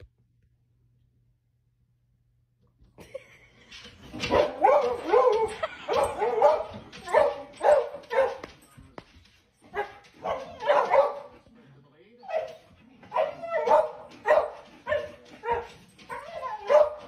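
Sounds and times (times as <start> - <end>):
dog barking and yipping: 4.1 - 8.5, 9.7 - 11.4, 12.2 - 17.0.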